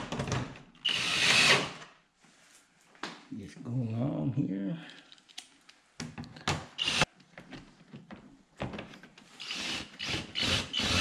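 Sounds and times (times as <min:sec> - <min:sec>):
cordless drill driving screws: 0:00.8 - 0:01.8, 0:06.8 - 0:07.1, 0:09.4 - 0:11.0.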